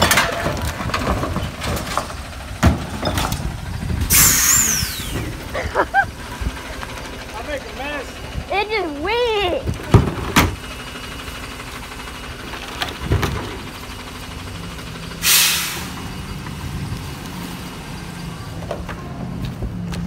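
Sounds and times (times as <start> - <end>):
truck engine idling: 0.0 - 20.0
air brake hiss: 4.1 - 5.3, 15.2 - 16.0.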